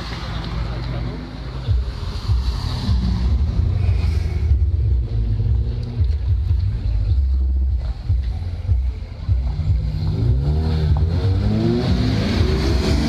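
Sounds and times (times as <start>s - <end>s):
cars driving past: 0.0s - 6.9s, 9.3s - 13.0s.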